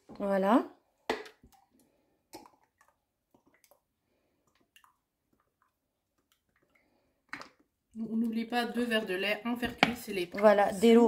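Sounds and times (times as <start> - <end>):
oil glugging into plastic cup: 1.1 - 7.8.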